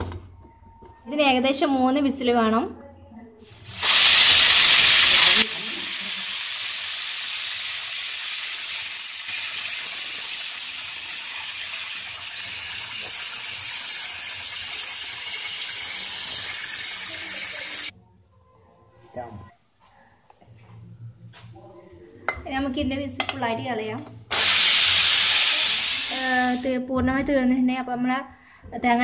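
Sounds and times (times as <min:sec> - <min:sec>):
steam hissing from pressure cooker: 0:03.5 - 0:17.9, 0:24.3 - 0:26.8.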